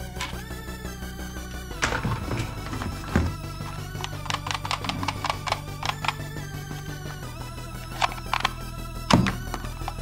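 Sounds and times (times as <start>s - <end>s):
background music with steady beat: 0.0s - 10.0s
toy pistol plastic clicks: 3.9s - 6.3s, 7.8s - 8.6s.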